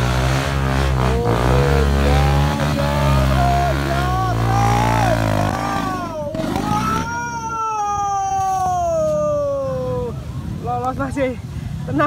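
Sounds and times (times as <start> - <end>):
dirt bike engine revving hard: 0.0 - 7.2
people shouting: 1.0 - 9.9.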